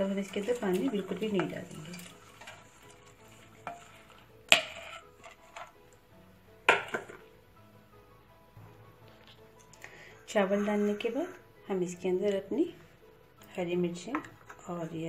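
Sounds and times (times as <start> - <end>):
metal bowl clanking on pot rim: 0.0 - 5.7, 6.7 - 7.2.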